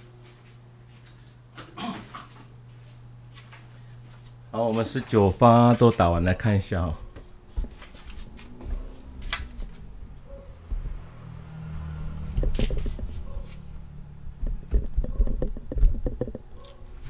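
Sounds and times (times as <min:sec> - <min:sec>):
low uneven rumble: 0:07.3 - 0:16.6
light knocks and clicks: 0:14.4 - 0:16.8.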